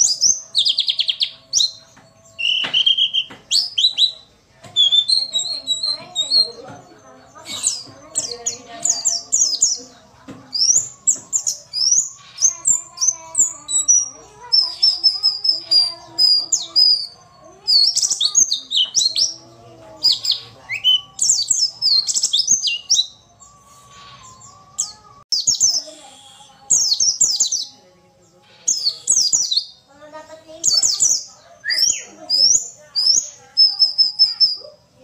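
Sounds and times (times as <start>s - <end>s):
bird twittering chirps and trills: 0.0s - 35.0s.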